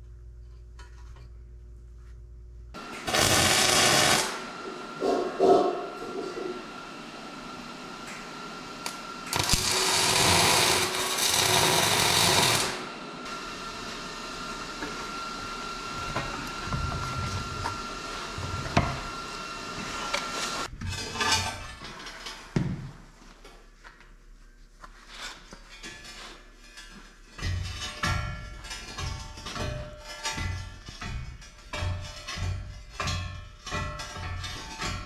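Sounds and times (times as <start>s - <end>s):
welder crackling sizzle: 2.8s - 4.8s, 8.0s - 20.7s.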